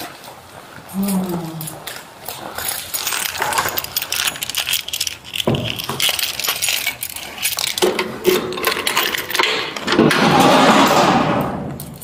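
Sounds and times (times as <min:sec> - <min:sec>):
small metal objects jingling: 0:01.0 - 0:09.5.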